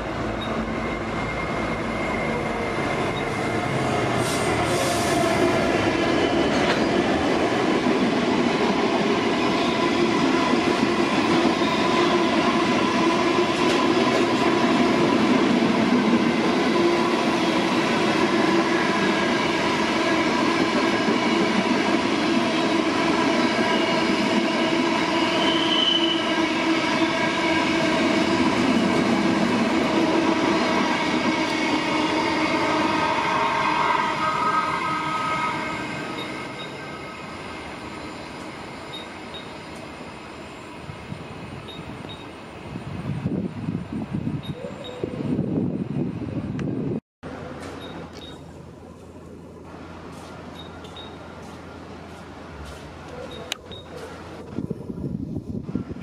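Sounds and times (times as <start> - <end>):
electric train whine: 0.0 - 44.5.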